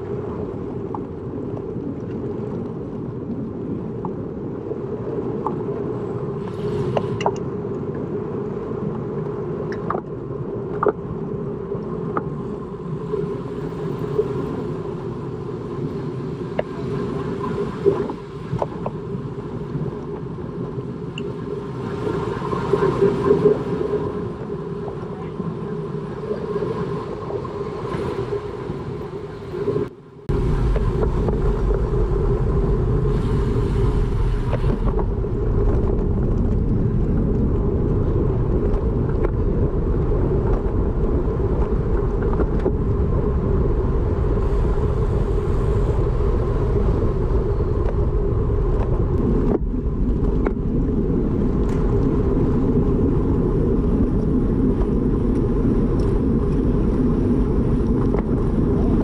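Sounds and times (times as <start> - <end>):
wind rushing over microphone: 0.0 - 59.0
road noise: 27.8 - 50.4.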